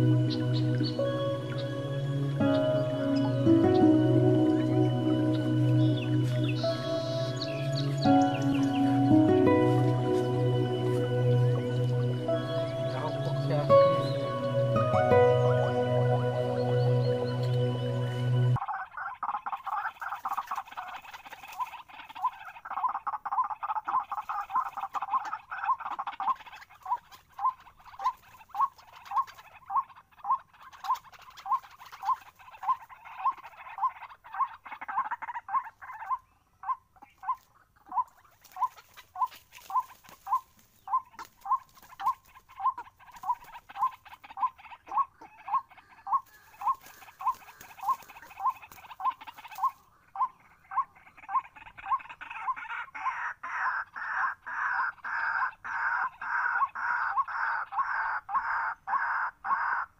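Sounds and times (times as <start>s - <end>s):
waterhens calling: 0.0s - 59.9s.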